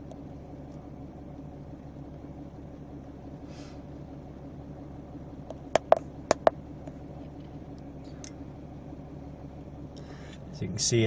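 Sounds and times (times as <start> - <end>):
low hum inside car: 0.0 - 11.0.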